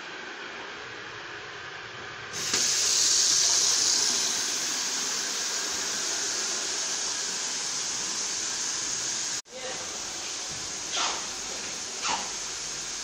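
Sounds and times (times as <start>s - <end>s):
mixer tap turned on: 2.4s - 4.2s
water running into a metal sink: 2.4s - 13.0s.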